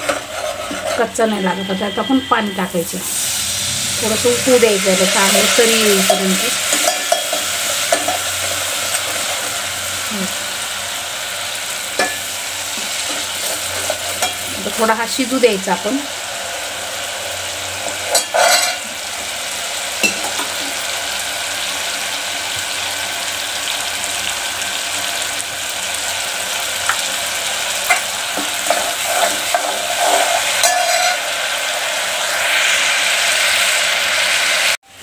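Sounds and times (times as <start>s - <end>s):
ladle scraping a pot: 0.0s - 1.3s, 17.8s - 18.9s, 27.9s - 31.3s
paste sizzling in oil: 0.0s - 34.8s.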